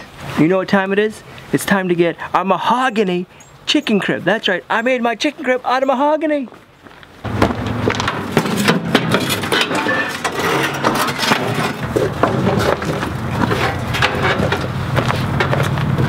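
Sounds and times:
wooden crate clattering: 7.2s - 16.0s.

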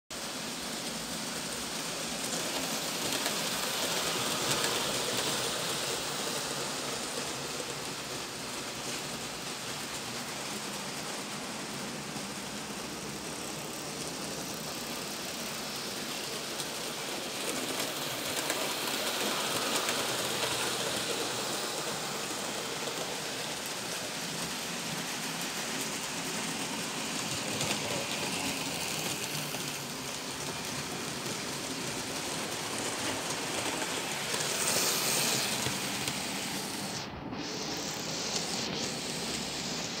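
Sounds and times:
model trains rushing on rails: 0.1s - 40.0s.

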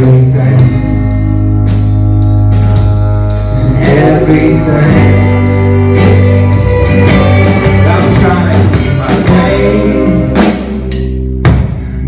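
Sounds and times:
bass guitar: 0.0s - 12.0s
drums: 0.0s - 12.0s
electric guitar: 0.0s - 12.0s
keyboard chords: 0.0s - 12.0s.

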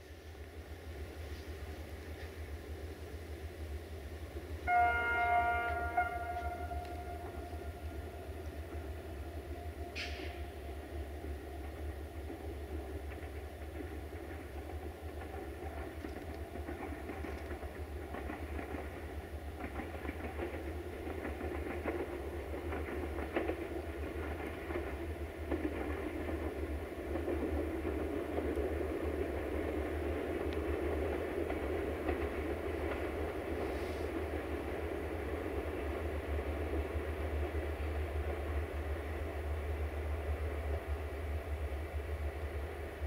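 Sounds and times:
diesel locomotive engine running: 0.0s - 43.0s
wheels clicking on rails: 4.9s - 41.0s.

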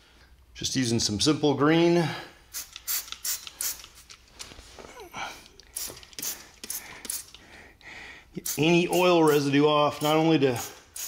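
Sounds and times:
spray bottle squirting: 2.5s - 4.3s, 5.6s - 7.4s, 8.4s - 11.0s.

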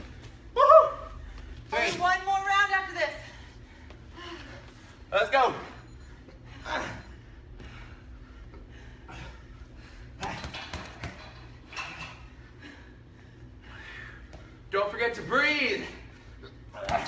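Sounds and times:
gloves punching heavy bag: 10.2s - 11.3s, 16.8s - 17.0s.

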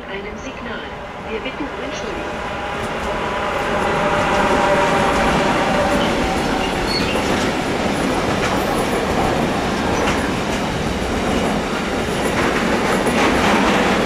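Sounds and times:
train wheels running on rails: 1.4s - 14.0s
high wheel squeal: 5.9s - 7.4s.

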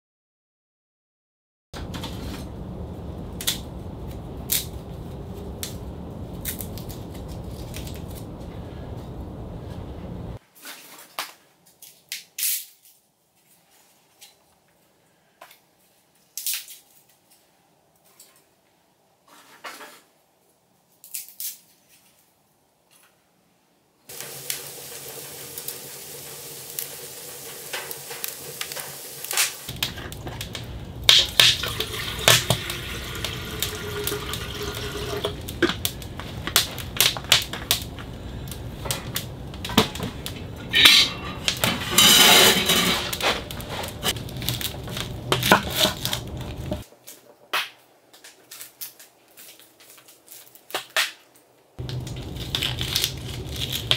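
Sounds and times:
water pouring into metal pot: 24.1s - 35.9s
metal pots and cups clinking: 40.7s - 43.4s.

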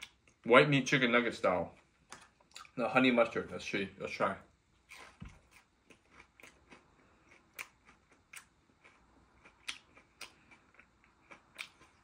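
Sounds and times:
fried chicken being chewed: 4.9s - 12.0s.

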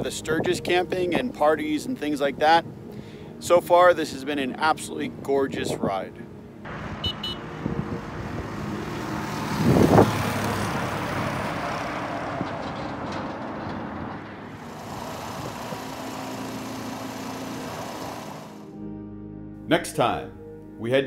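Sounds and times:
road noise: 0.0s - 18.8s
dirt bike engine passing: 6.9s - 12.4s
wind-like hiss: 14.6s - 18.7s.

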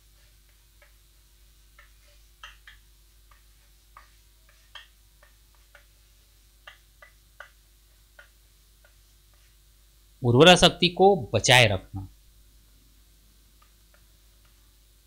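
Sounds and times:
chalk tapping on a chalkboard: 1.7s - 9.6s.

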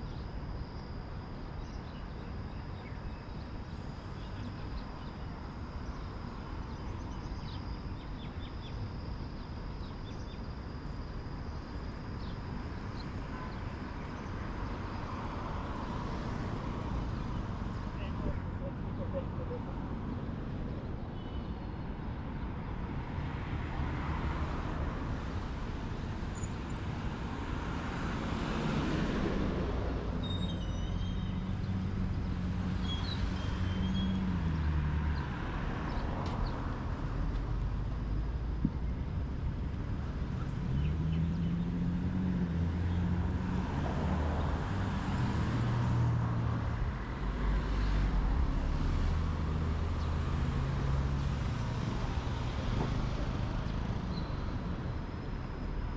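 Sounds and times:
vehicles passing: 11.9s - 55.9s.

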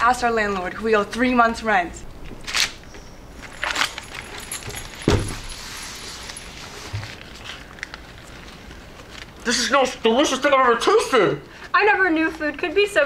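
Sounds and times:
rustling: 2.4s - 9.5s.

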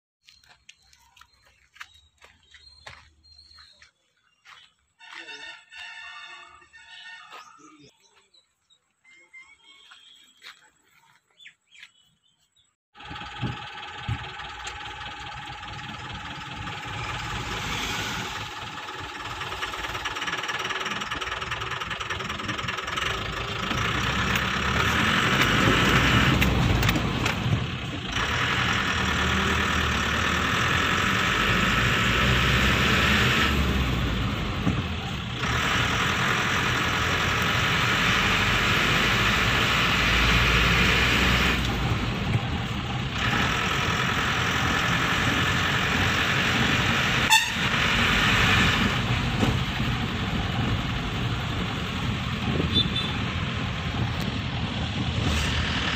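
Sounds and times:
road noise: 0.2s - 55.9s
diesel truck engine running: 13.0s - 55.9s.

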